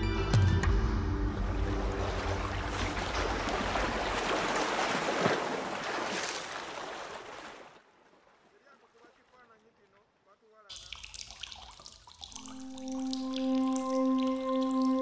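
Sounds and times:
liquid churning and splashing: 1.6 - 8.4, 10.7 - 15.0.

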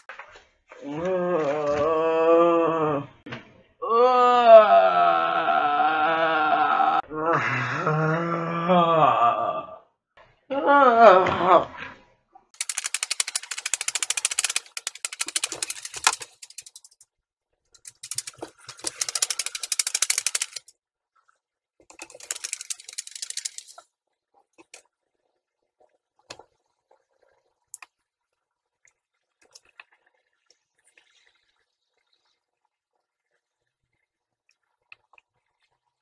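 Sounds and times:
paper flapping rapidly: 12.6 - 17.0, 17.9 - 20.7, 21.9 - 23.8.

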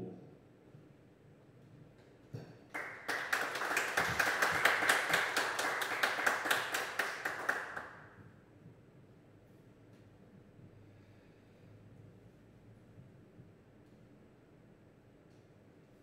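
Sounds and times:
small audience clapping: 2.7 - 8.2.

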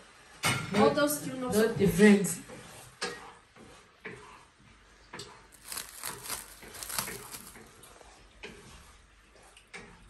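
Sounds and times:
faint crackling and rustling: 5.2 - 8.6.

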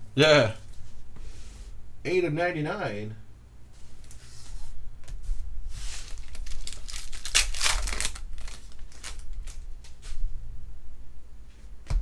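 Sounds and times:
foil wrapper crinkling and tearing: 5.9 - 9.7.

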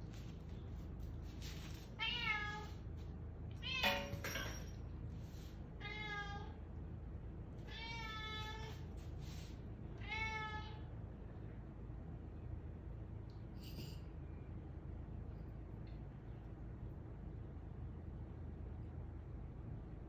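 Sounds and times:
cat meowing: 7.7 - 8.8, 10.0 - 10.8.

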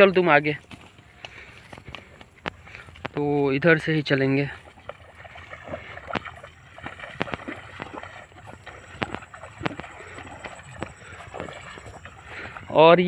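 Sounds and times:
footsteps squelching through mud: 0.0 - 13.0.

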